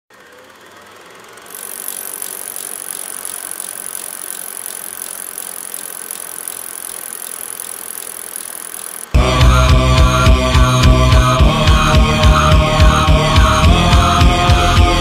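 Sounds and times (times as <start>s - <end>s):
mechanical whirr: 0.2s - 9.2s.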